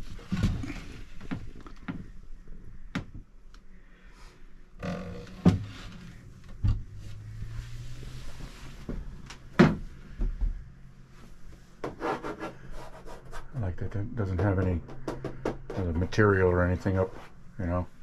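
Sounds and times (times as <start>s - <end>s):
cabin lockers and hatches knocking: 14.3s - 16.2s.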